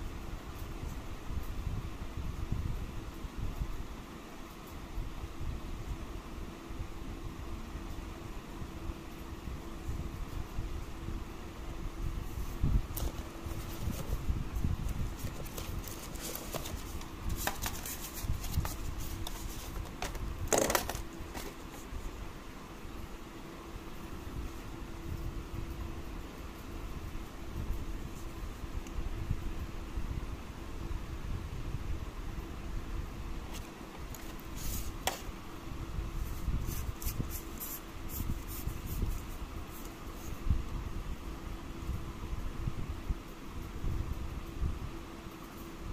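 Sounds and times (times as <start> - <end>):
hands handling cardboard box: 12.4 - 22.1, 33.5 - 35.3
plastic packaging rustle: 12.4 - 22.1.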